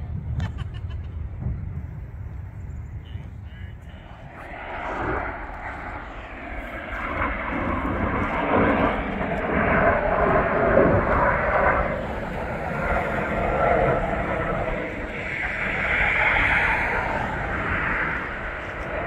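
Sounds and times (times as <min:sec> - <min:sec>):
aircraft engine flying past: 0:00.0 - 0:19.0.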